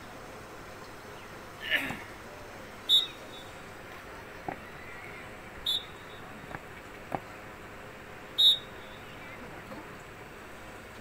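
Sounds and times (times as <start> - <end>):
high-pitched whistle blasts: 5.6 - 6.1, 8.4 - 8.7.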